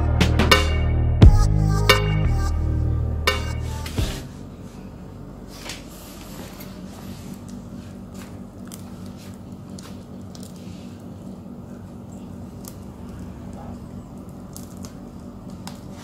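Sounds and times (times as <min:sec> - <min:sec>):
low steady hum: 0:00.0 - 0:16.0
durian husk cracking: 0:07.3 - 0:16.0.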